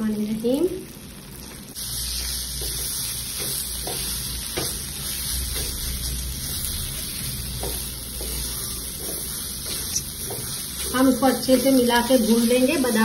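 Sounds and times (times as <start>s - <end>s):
steady sizzle: 0.0s - 13.0s
spatula scraping in a pan: 1.8s - 13.0s.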